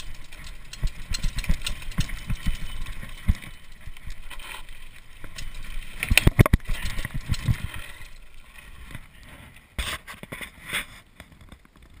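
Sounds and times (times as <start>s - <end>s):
mountain bike rumbling on dirt: 0.0s - 9.5s.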